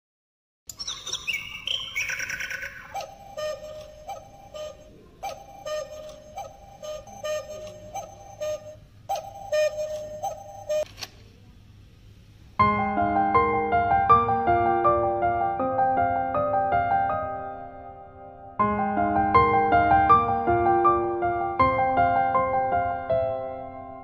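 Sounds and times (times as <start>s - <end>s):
cuckoo clock calls: 0.7s - 10.9s
high falling chirps: 0.7s - 10.9s.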